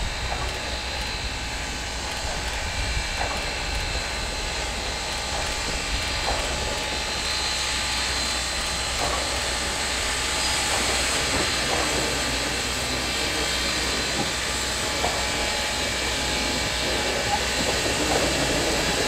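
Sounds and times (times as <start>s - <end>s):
steam hissing: 0.0s - 19.0s.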